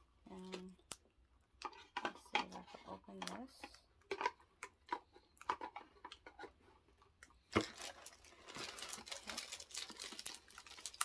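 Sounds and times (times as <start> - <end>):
tissue paper crinkling: 7.6 - 11.0.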